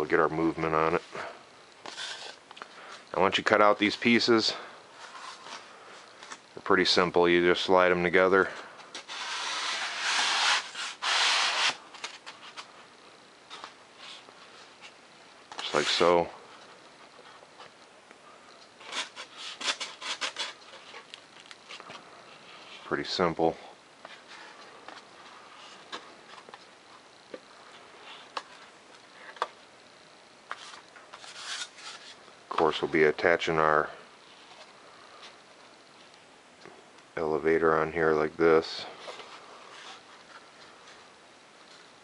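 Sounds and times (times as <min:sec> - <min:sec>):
foam board scraping together: 0:09.0 - 0:12.7, 0:30.6 - 0:32.2.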